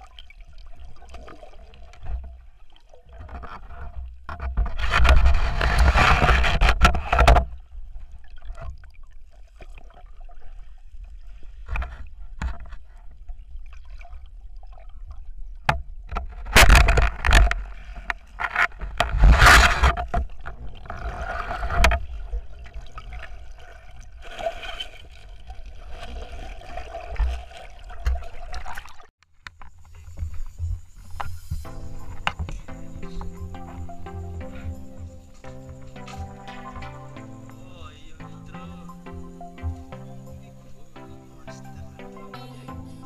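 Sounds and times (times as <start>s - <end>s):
water surges: 0.0s - 3.8s, 19.1s - 29.1s
muffled underwater rush: 19.1s - 29.1s.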